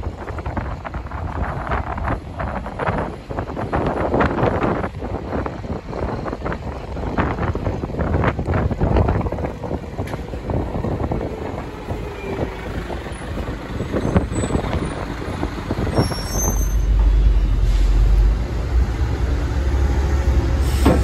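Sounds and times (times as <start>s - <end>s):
buses and traffic rumbling: 0.0s - 21.0s.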